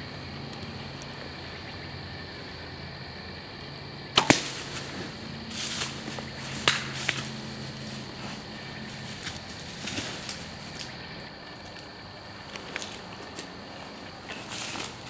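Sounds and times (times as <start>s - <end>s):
bow string snap: 4.1s - 4.8s, 6.5s - 7.3s
arrow striking target: 4.2s - 4.8s
rustling: 4.2s - 11.0s.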